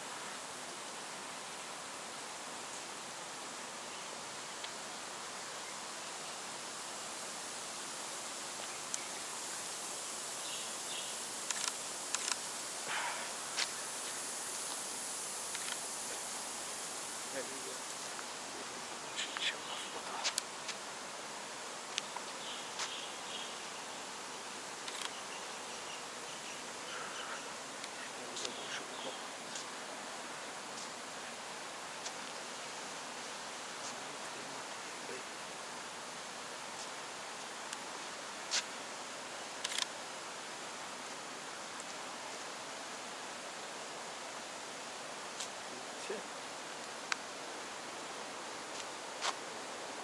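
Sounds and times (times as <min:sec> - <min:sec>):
outdoor background hiss: 0:00.0 - 0:50.0
faint chirps: 0:08.6 - 0:14.9, 0:15.5 - 0:20.4, 0:22.0 - 0:29.8
sharp clicks: 0:11.5 - 0:12.4.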